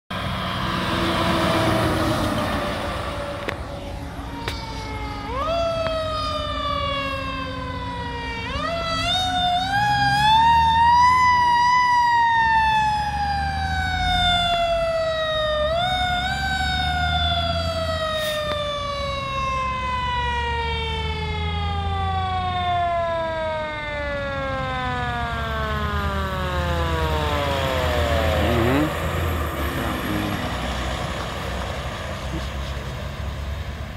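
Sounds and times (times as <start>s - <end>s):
low rumble of truck engines: 0.1s - 33.9s
fire truck siren winding: 4.2s - 28.9s.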